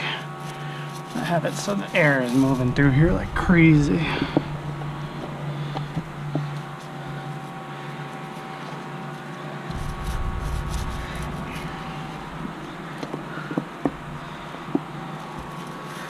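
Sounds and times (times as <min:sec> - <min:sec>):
electric fan humming: 0:00.0 - 0:16.0
low rumble: 0:02.6 - 0:06.8, 0:09.7 - 0:15.4.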